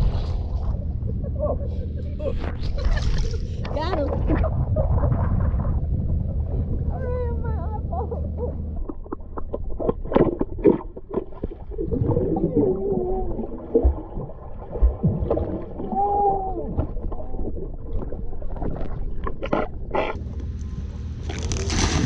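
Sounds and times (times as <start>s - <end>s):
muffled underwater rumble: 0.0s - 22.0s
underwater clicks and knocks: 8.8s - 11.6s
bubbling water: 8.8s - 20.2s.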